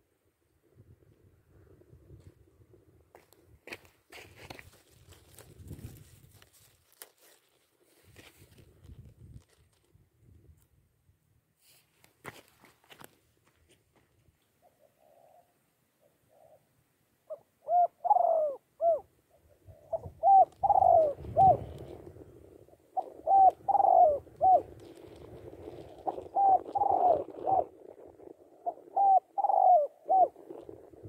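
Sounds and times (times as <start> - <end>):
dove cooing: 14.6 - 31.0.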